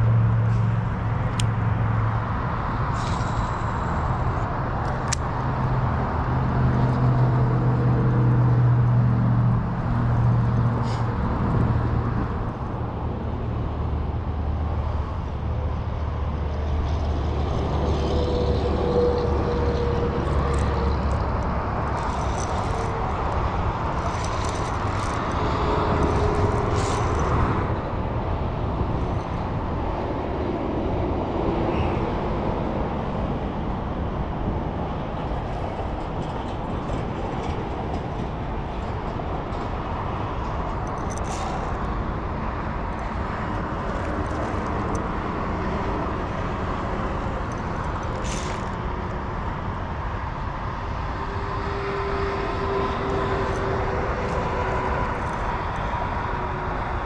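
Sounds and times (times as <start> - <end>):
low engine hum: 0.0 - 57.0
vehicles passing: 0.0 - 57.0.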